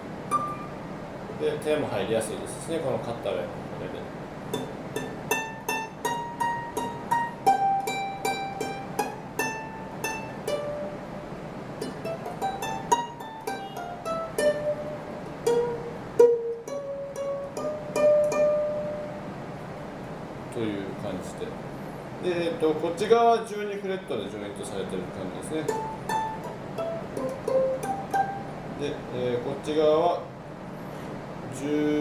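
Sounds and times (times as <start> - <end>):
ukulele melody plucked: 0.3 - 0.8, 4.5 - 11.1, 11.7 - 19.3, 25.6 - 28.8.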